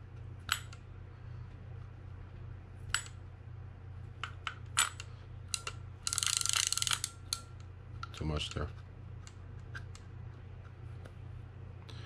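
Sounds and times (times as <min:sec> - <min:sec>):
fishing reel clicks: 0:04.8 - 0:08.3.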